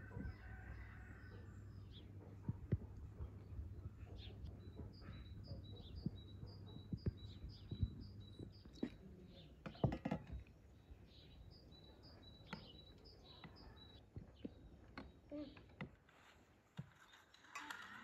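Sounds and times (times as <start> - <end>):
small songbird chirping: 3.3 - 9.9, 10.7 - 15.2.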